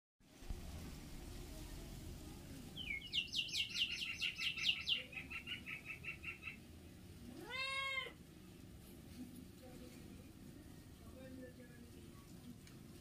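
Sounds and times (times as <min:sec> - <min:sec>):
bird whistling call: 0:02.8 - 0:06.6
cat meowing: 0:07.3 - 0:08.2.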